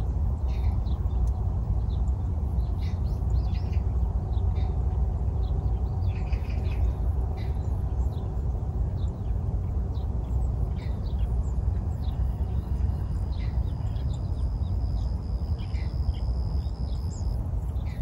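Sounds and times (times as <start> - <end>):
small birds chirping: 0.0 - 18.0
steady low rumble: 0.0 - 18.0.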